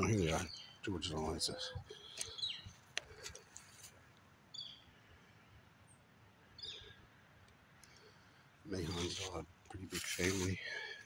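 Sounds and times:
bird chirping: 0.0 - 2.8, 4.5 - 4.9, 6.6 - 7.0.

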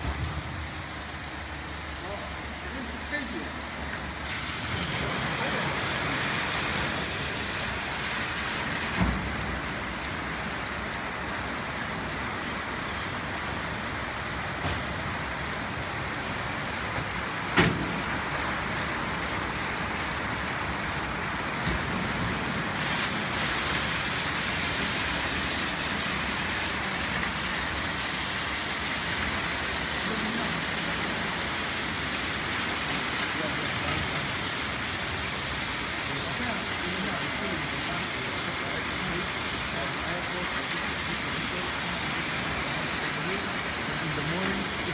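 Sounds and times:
car wash spray and brush hiss: 0.0 - 44.9.

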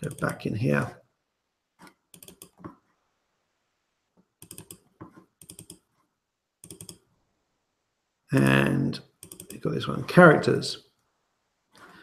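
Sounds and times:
computer mouse clicking: 0.0 - 0.4, 1.8 - 2.8, 4.4 - 5.9, 6.6 - 7.1, 9.2 - 9.6.

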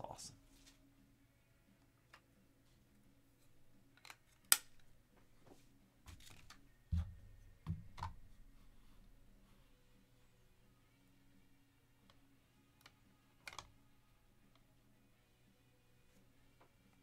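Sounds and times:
plastic snap: 4.0 - 4.9.

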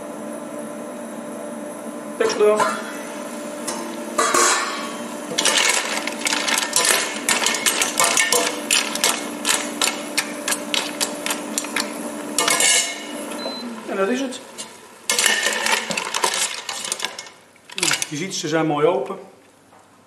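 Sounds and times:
steady low hum: 0.0 - 18.0
mussel shells clattering: 5.3 - 12.8, 15.1 - 18.2.

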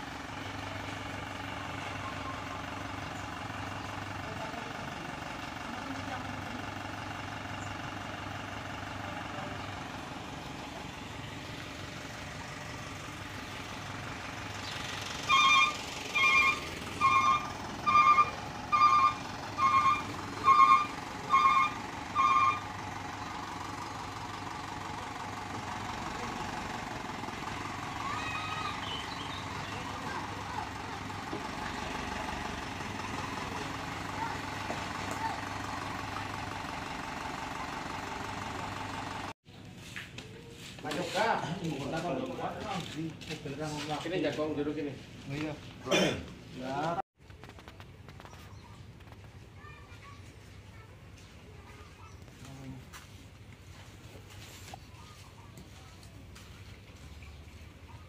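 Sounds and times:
truck engine running: 0.0 - 58.0
truck reversing alarm beeps: 15.2 - 22.8.

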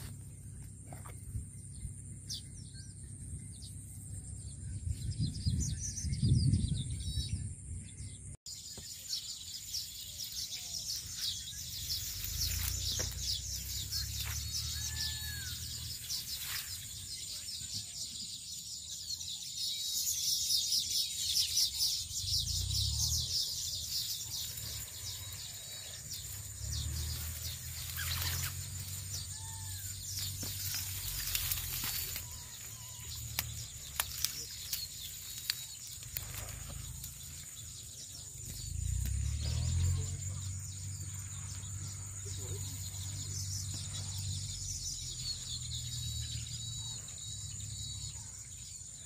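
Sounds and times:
small birds chirping: 0.0 - 49.0
reed stems rustling: 9.0 - 17.1, 23.6 - 39.8.

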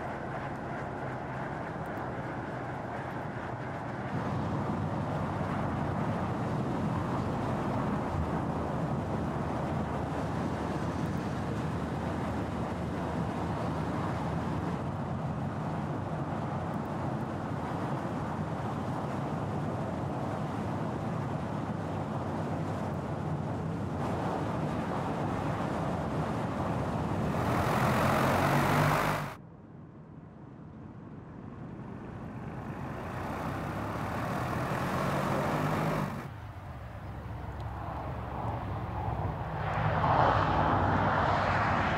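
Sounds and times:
tyre and road noise: 23.8 - 29.4, 31.2 - 41.9
car engine driving: 25.7 - 29.4, 31.7 - 37.7.

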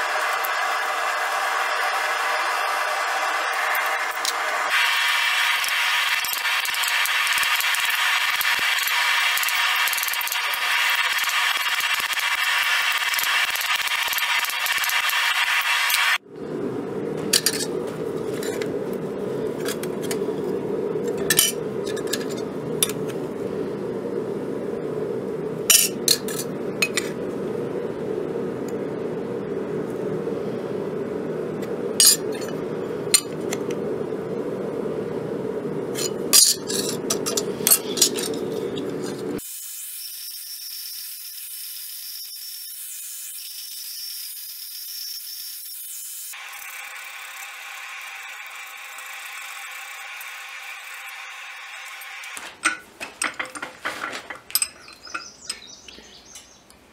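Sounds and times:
low hum: 16.2 - 39.4
copper sheet clinking and scraping: 52.5 - 55.6.

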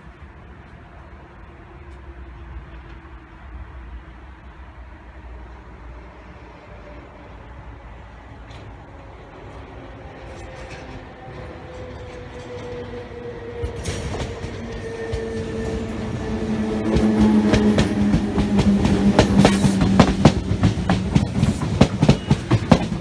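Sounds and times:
electric train whine: 0.1 - 23.0
wheels clacking over rail joints: 10.2 - 23.0.

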